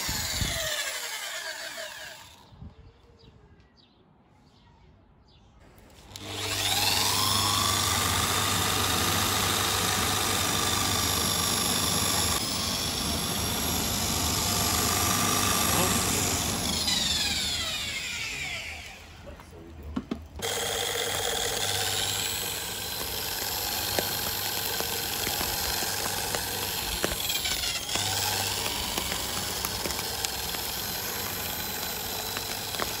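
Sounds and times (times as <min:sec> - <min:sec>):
electric drill spinning fan blade: 0:00.0 - 0:02.5, 0:06.0 - 0:19.2, 0:20.3 - 0:33.0
charcoal crackling: 0:21.6 - 0:33.0.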